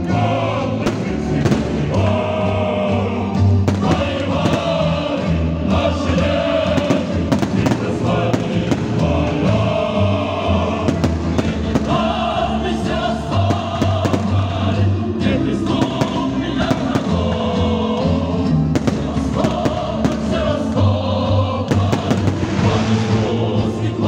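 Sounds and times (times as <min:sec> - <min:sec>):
choral music: 0:00.0 - 0:24.0
fireworks bursting: 0:00.8 - 0:02.2, 0:03.6 - 0:05.3, 0:06.7 - 0:09.6, 0:10.8 - 0:12.3, 0:13.4 - 0:14.5, 0:15.7 - 0:17.4, 0:18.8 - 0:20.9, 0:21.7 - 0:23.9.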